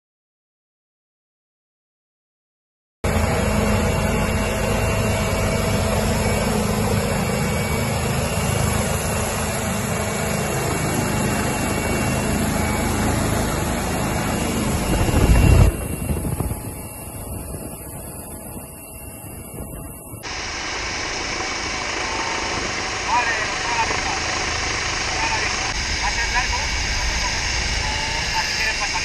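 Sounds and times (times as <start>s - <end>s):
helicopter turbine and rotor: 3.0s - 29.0s
low rumble: 3.1s - 18.6s.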